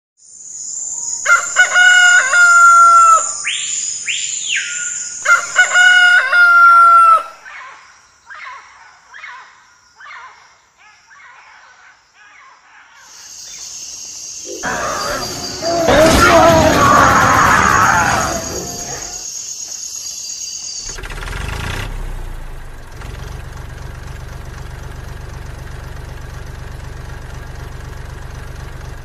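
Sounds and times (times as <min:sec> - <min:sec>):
rooster crowing: 0:01.2 - 0:03.4, 0:05.0 - 0:07.4, 0:14.5 - 0:19.2
high-pitched whine: 0:13.1 - 0:21.6.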